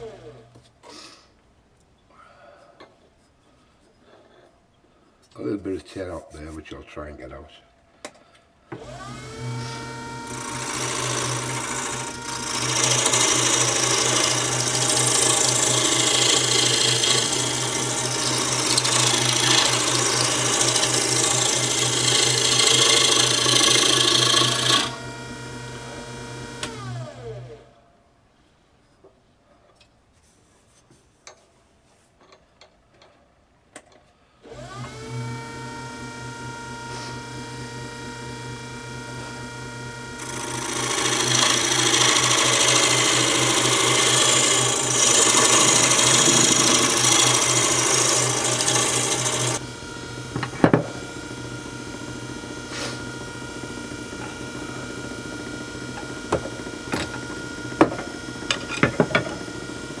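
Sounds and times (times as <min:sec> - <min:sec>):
wood lathe motor whining: 0:08.7 - 0:27.8, 0:34.4 - 1:00.0
turning tool scraping wood: 0:09.5 - 0:25.0, 0:40.2 - 0:49.6, 0:52.6 - 0:53.1.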